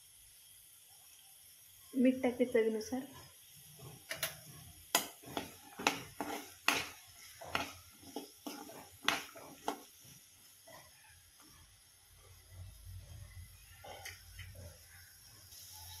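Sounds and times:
spoon scraping pan: 3.1s - 11.7s.

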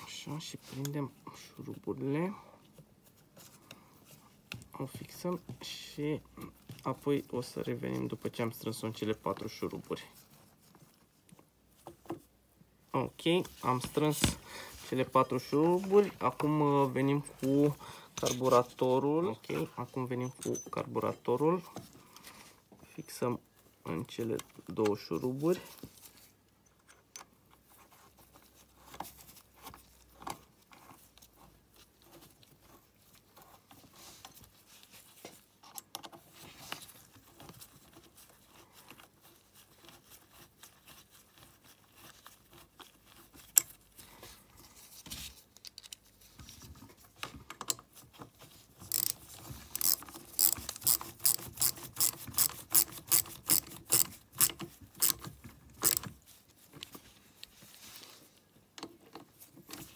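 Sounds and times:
faint clicks of tools handled: 45.5s - 46.2s, 47.2s - 47.9s
socket ratchet clicking: 48.9s - 49.2s, 49.8s - 55.2s, 55.8s - 56.0s.

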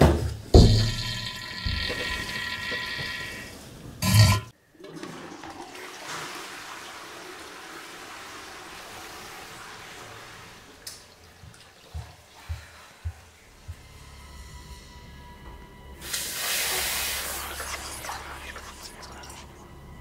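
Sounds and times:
cistern refilling hiss: 0.6s - 4.4s, 16.0s - 19.5s
toilet flushing: 0.6s - 13.2s, 16.0s - 19.6s.

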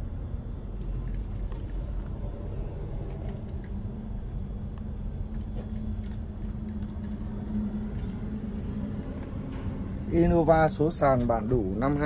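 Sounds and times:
low hum: 0.0s - 12.0s
vehicle engine rumbling: 0.0s - 12.0s.

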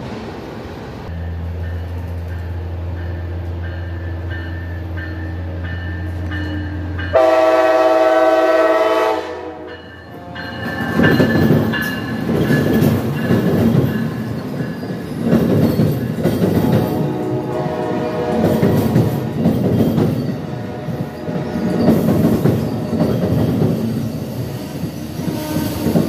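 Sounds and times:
train rushing past: 0.0s - 26.0s
locomotive horn blast: 6.1s - 10.6s, 16.9s - 19.3s, 20.4s - 21.7s, 25.1s - 26.0s
bell dinging: 9.7s - 17.5s.

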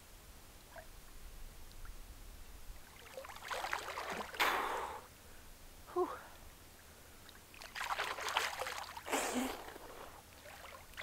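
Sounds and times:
water sloshing: 2.8s - 4.5s, 7.2s - 11.0s
water splash: 2.9s - 4.9s, 7.5s - 11.0s.

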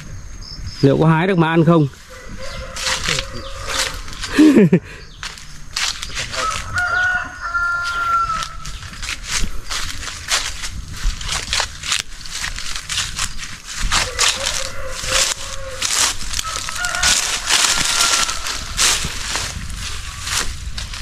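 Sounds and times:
dry leaves and twigs crunching: 1.1s - 21.0s.

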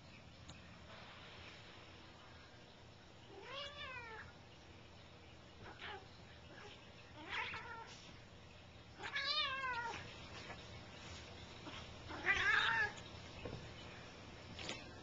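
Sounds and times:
cat meowing: 3.3s - 4.3s, 6.6s - 7.9s, 9.0s - 10.0s, 12.1s - 13.0s.

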